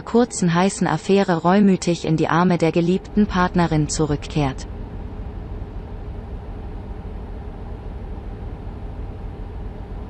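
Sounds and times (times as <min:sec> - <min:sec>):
low rumbling noise: 0:00.0 - 0:10.0.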